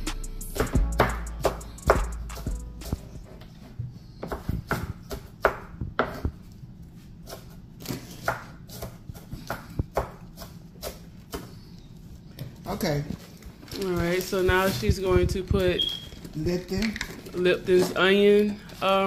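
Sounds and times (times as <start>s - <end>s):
knife chopping on wooden board: 4.2s - 6.4s, 7.2s - 11.6s.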